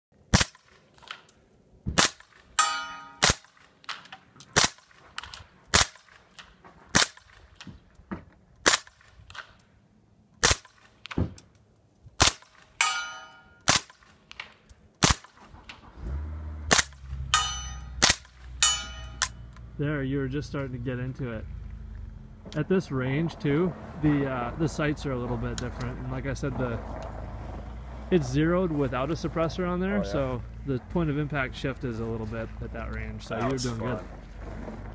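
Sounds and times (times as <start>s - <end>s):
suppressed gunshots: 0.3s - 1.2s, 1.9s - 2.6s, 3.2s - 4.0s, 5.7s - 7.6s, 8.6s - 9.5s, 10.4s - 11.4s, 12.2s - 12.9s, 13.6s - 14.2s, 15.0s - 15.8s, 16.7s - 17.1s, 18.0s - 18.6s
ringing metallic ping: 2.6s - 3.2s, 12.8s - 13.6s, 17.3s - 18.0s, 18.6s - 19.4s.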